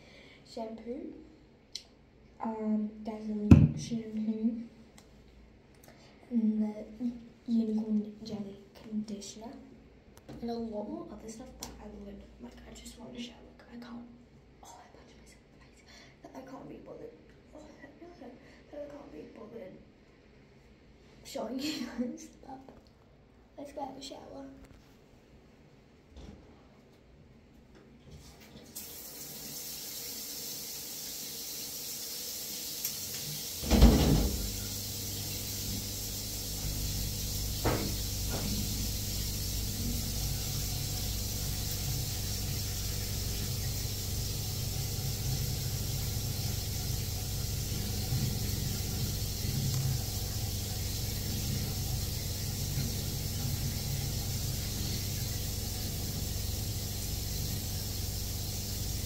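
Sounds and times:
shower water spraying: 28.7s - 59.0s
glass shower door knocking shut: 33.6s - 34.6s, 37.6s - 38.6s.

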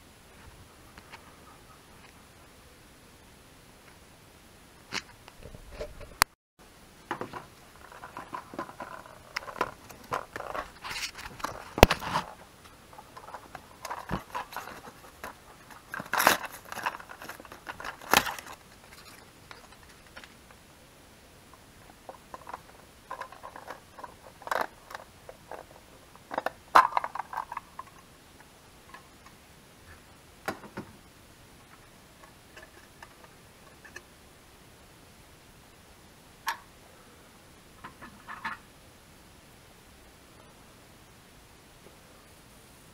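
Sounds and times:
plastic clicks and scrapes: 13.0s - 20.4s, 22.1s - 28.0s.

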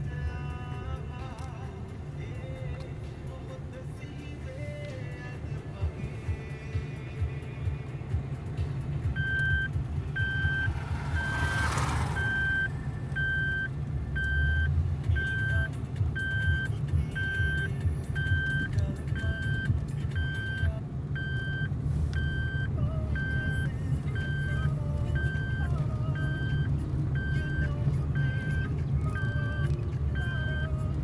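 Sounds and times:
engine and road rumble: 0.0s - 31.0s
electronic warning chime beeping: 9.2s - 11.4s, 12.2s - 27.6s.

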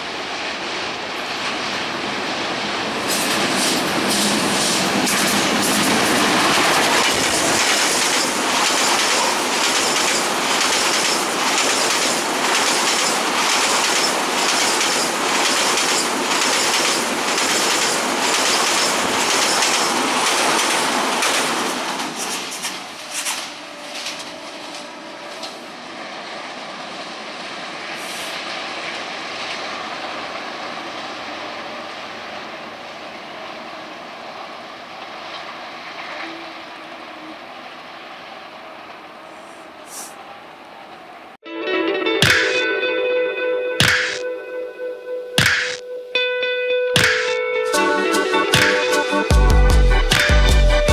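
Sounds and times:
train rumbling over bridge: 0.0s - 41.4s, 47.8s - 50.9s
clickety-clack of wheels: 3.0s - 25.6s.

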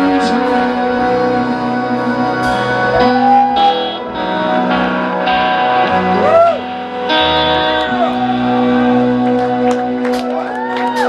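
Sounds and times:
live band playing: 0.0s - 11.0s
guitar pitch bends: 1.8s - 10.1s.

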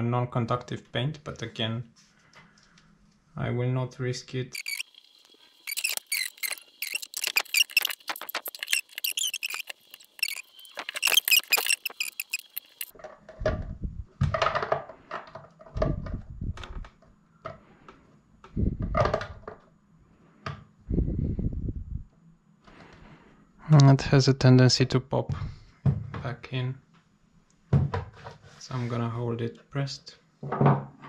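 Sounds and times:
plastic shell squeaking and creaking: 4.5s - 17.0s.

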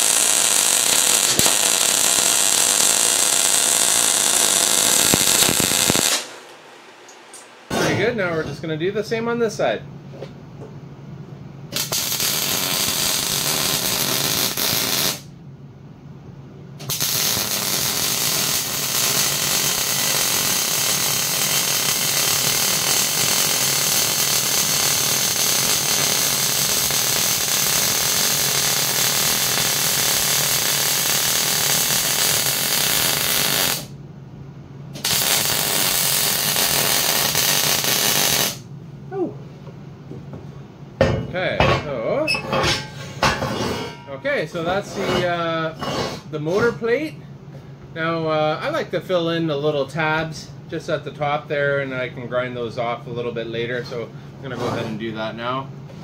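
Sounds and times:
welder arc crackling: 0.0s - 7.7s, 11.7s - 15.3s, 16.8s - 33.9s, 35.0s - 38.7s.

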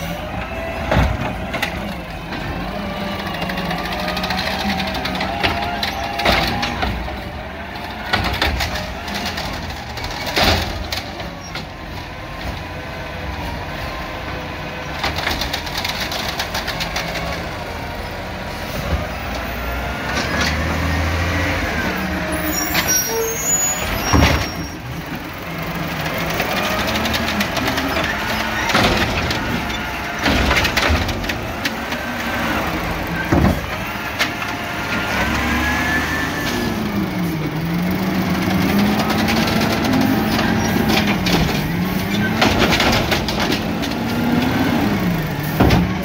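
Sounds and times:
garbage truck diesel engine: 0.0s - 46.0s
cart banging against hopper: 0.3s - 13.6s, 22.6s - 35.7s, 38.4s - 46.0s.

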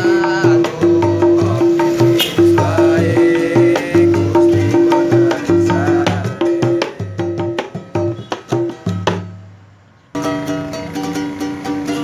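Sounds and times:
man singing: 0.0s - 8.1s
hand-drum beats: 0.0s - 9.6s
ukuleles strummed: 10.2s - 12.0s.

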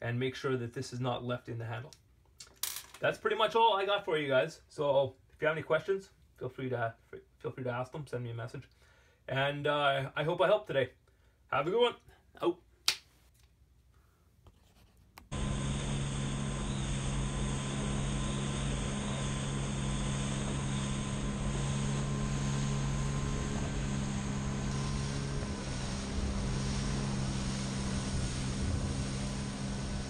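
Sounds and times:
small watercraft engine running: 15.3s - 30.0s.

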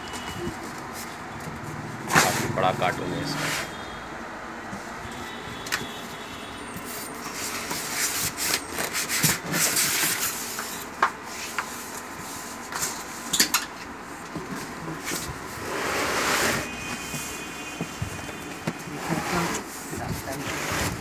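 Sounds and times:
cardboard and foam packing rubbing: 6.1s - 13.2s, 14.4s - 21.0s.

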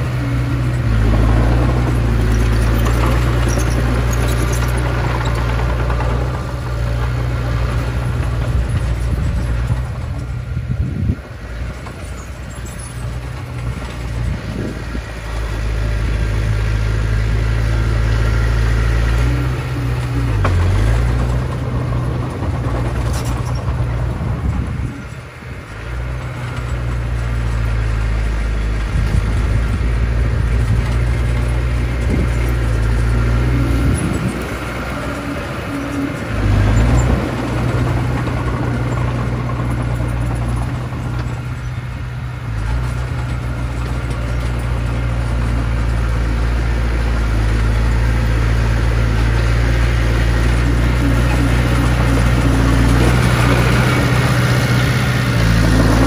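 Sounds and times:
bulldozer diesel engine under load: 0.0s - 56.0s.

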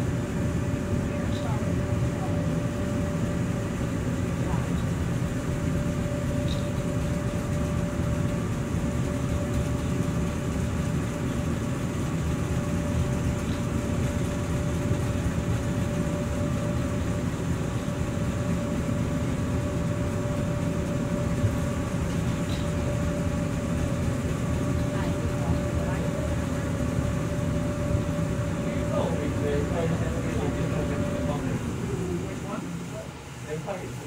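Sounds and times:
mid-pitched hum: 0.0s - 34.0s.

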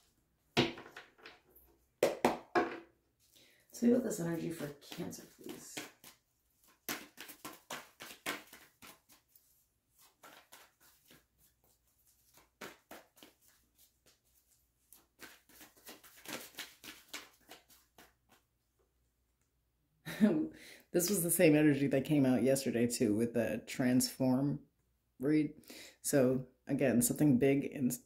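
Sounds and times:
cards being shuffled: 4.1s - 18.5s.

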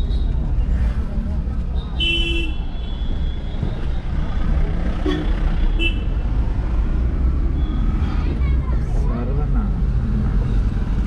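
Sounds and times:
vehicle engine and road rumble: 0.0s - 11.0s.

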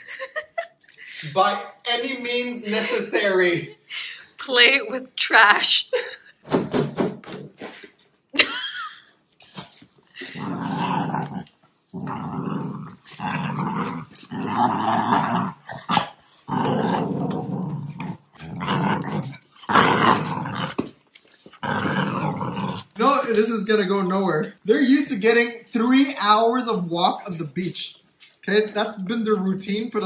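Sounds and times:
dogs play-growling: 9.6s - 23.0s.

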